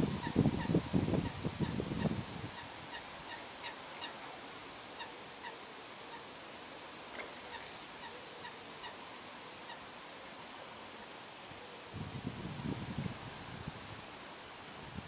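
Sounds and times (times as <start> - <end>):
soft steady hiss: 0.0 - 15.0.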